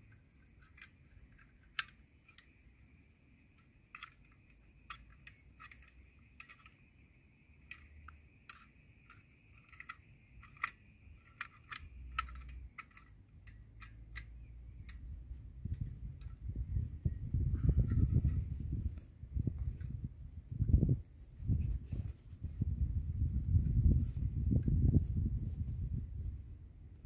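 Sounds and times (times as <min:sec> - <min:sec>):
metal parts clicking and tapping: 0:00.0 - 0:16.5.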